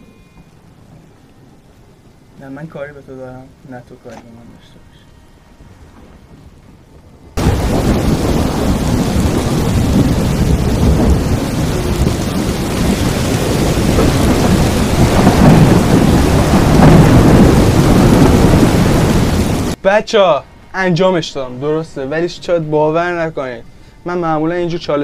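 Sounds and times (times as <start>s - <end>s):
heavy rain: 0.0s - 19.8s
rumbling thunder: 5.5s - 19.8s.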